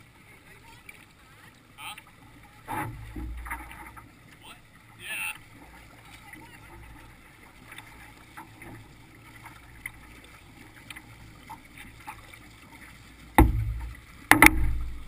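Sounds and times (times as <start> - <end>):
water lapping and trickling: 0.0 - 15.0
ticks against canoe hull: 2.7 - 4.5, 13.3 - 15.0
loud thump on canoe bow: 13.4 - 14.9.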